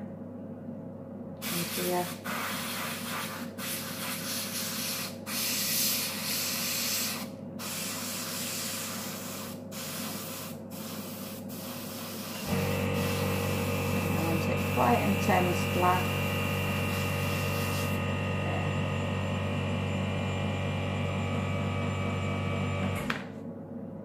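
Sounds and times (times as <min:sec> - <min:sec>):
steady hum: 0:00.0 - 0:24.0
airbrush hissing: 0:01.4 - 0:18.0.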